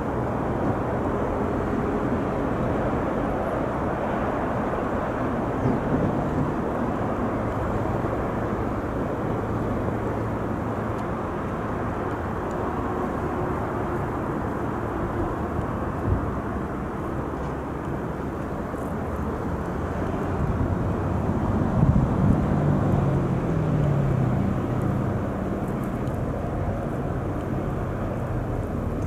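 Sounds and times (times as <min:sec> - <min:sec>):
wind on microphone: 0:19.9 - 0:29.0.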